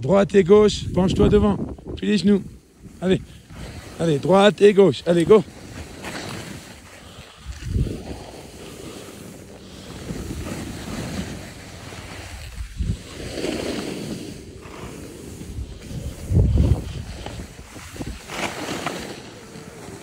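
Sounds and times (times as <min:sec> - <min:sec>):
wind buffeting microphone: 0:00.0 - 0:04.4, 0:07.1 - 0:18.8
skis scraping over snow: 0:00.4 - 0:20.0.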